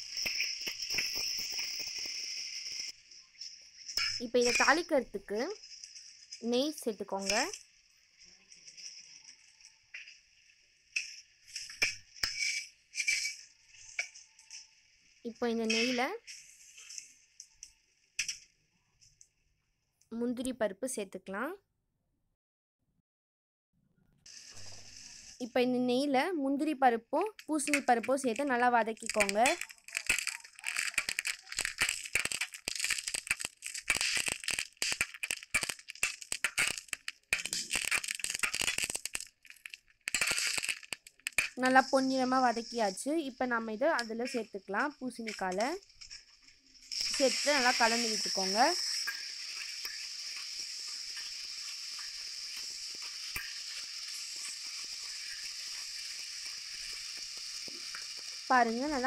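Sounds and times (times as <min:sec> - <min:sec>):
nuts sizzling in hot fat: 0:00.0 - 0:18.5, 0:24.3 - 0:59.0
steady high-pitched hiss: 0:00.0 - 0:18.6, 0:24.3 - 0:26.1, 0:27.4 - 0:59.0
spatula scraping a pan: 0:11.6 - 0:13.4.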